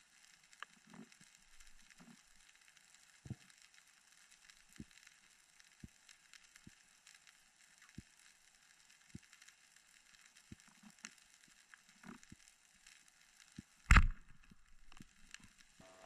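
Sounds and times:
faint crackling reef noise: 0.0 - 16.0.

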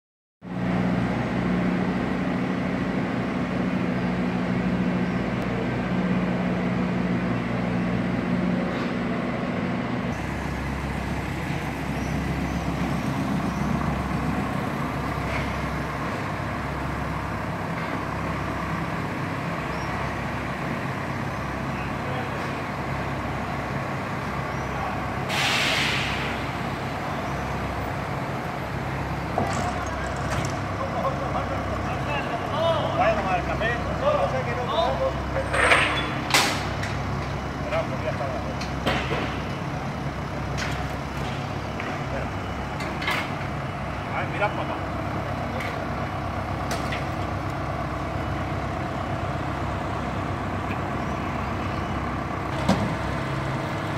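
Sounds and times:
diesel engine running: 0.4 - 53.9
hissing air burst: 25.2 - 26.6.

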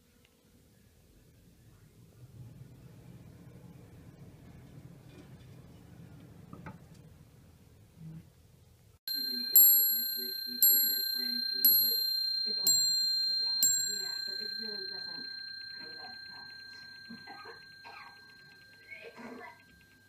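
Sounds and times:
clock bell striking: 9.1 - 20.0.

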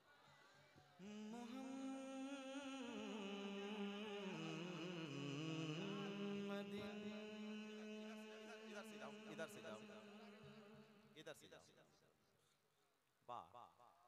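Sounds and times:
man singing unaccompanied: 1.0 - 11.3.

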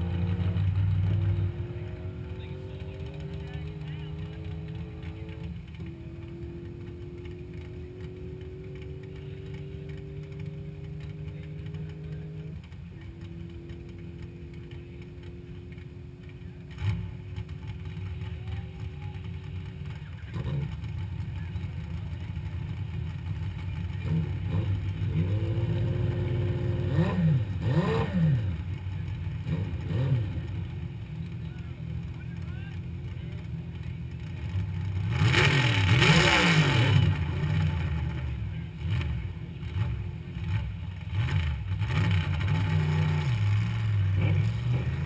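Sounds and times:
car engines idling: 0.0 - 45.0
engine revving in blips: 0.0 - 45.0.

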